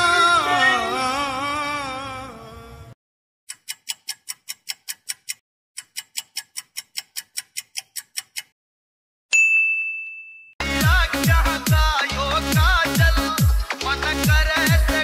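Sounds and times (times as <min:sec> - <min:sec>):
fast clock ticking: 0:03.5 - 0:08.6
loud bell-like ding: 0:09.3 - 0:10.6.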